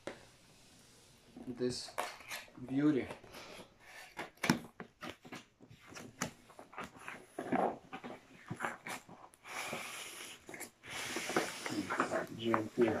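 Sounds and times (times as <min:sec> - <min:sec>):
cardboard rustling slide: 0:05.2 - 0:13.0.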